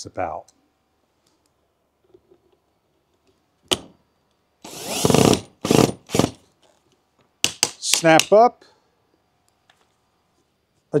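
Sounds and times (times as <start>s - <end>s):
cordless drill motor running: 4.6s - 6.4s.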